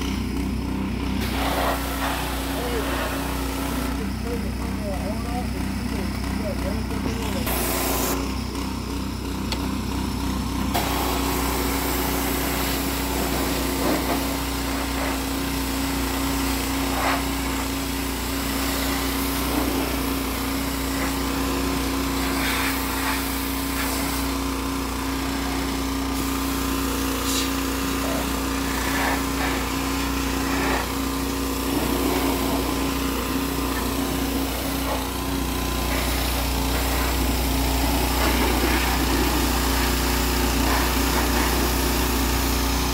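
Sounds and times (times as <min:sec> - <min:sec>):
pressure washer running: 0:00.0 - 0:42.9
water jet hissing against metal: 0:01.2 - 0:03.8, 0:10.8 - 0:24.4, 0:25.4 - 0:42.0.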